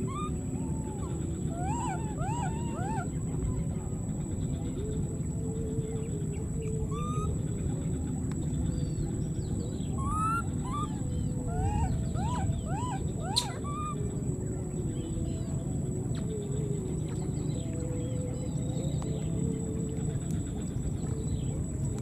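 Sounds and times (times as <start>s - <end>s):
steady background noise: 0.0s - 22.0s
baby monkey squeaking: 11.7s - 13.9s.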